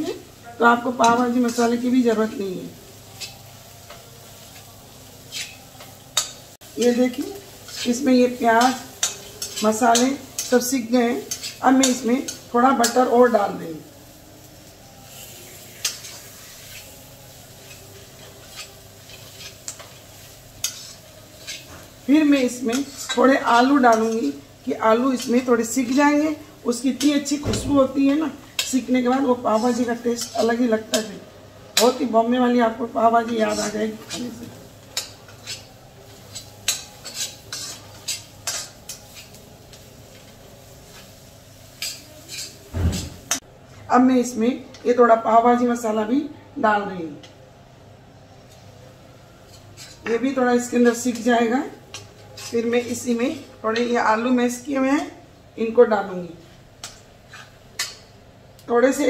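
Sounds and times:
faint sizzle of frying: 0:00.0 - 0:59.0
spatula scraping iron pan: 0:05.3 - 0:05.6, 0:20.6 - 0:21.8, 0:33.3 - 0:34.4, 0:36.3 - 0:39.3
metal spatula scraping pan: 0:05.3 - 0:13.0, 0:15.0 - 0:17.0, 0:17.6 - 0:24.4, 0:25.0 - 0:31.2, 0:33.1 - 0:40.2, 0:41.8 - 0:43.4, 0:49.5 - 0:50.2, 0:51.9 - 0:53.9, 0:56.8 - 0:58.0.

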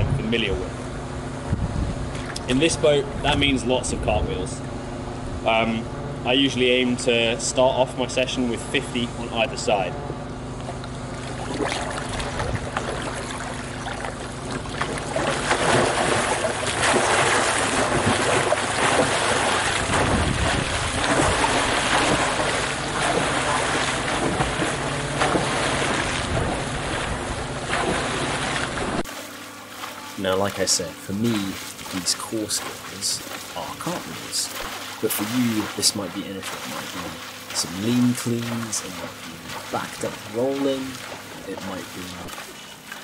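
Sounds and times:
water splashing and sloshing: 0:02.0 - 0:02.7, 0:06.5 - 0:43.0
paddle strokes: 0:10.6 - 0:43.0.

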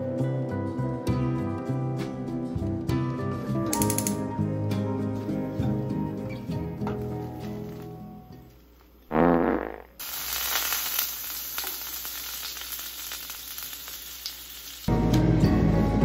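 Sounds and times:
bread sizzling in frying pan: 0:10.0 - 0:14.9.

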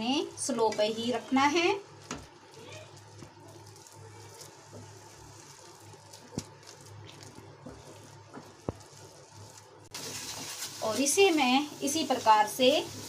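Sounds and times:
spatula scraping a pan: 0:00.6 - 0:10.9.

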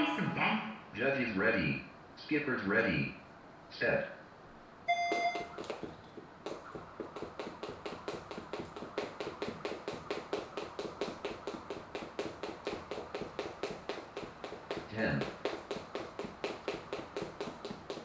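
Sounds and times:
jump rope ticking on floor: 0:04.9 - 0:18.0
light foot landings: 0:05.0 - 0:18.0.

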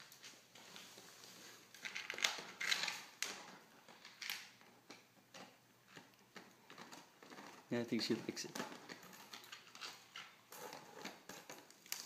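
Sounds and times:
dog crunching rawhide bone: 0:08.6 - 0:12.0.

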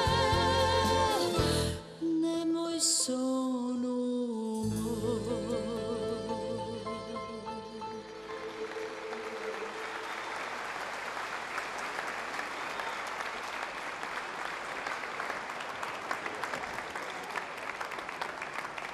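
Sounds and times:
audience applauding: 0:08.2 - 0:18.9.

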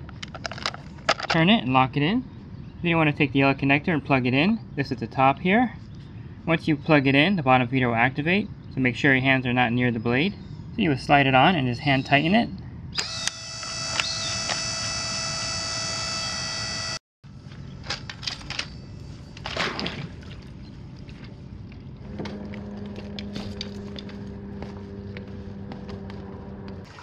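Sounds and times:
steady low hum: 0:12.3 - 0:27.0
motor whine: 0:13.0 - 0:17.0, 0:22.0 - 0:27.0.

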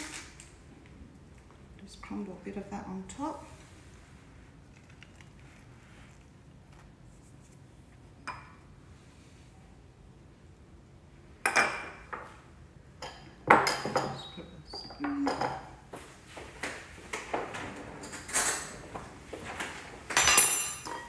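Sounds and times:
spoon and glass bowls clinking: 0:20.1 - 0:21.0.

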